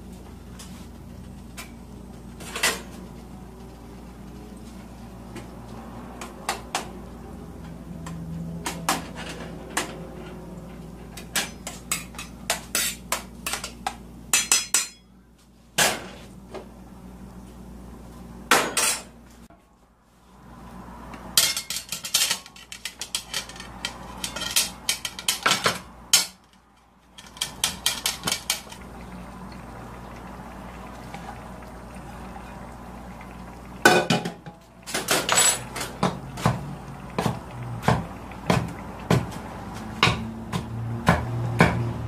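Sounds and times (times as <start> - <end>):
utensil clinking on metal pot: 11.3 - 15.1, 21.4 - 26.4, 27.2 - 28.8, 35.0 - 36.2.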